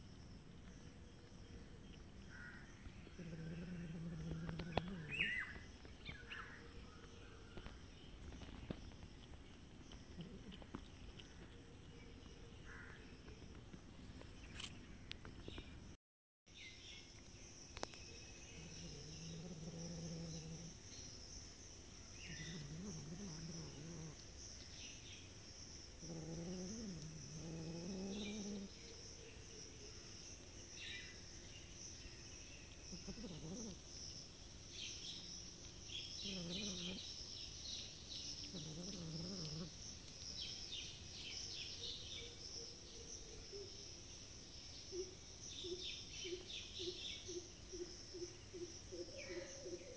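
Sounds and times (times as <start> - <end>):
low wavering animal calls: 2.3 - 6.7, 32.9 - 33.8, 36.2 - 37.0.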